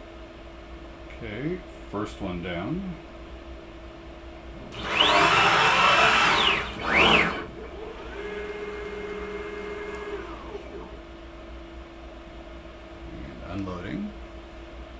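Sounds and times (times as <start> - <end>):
cnc router stepper motors whining: 4.6 - 11.0.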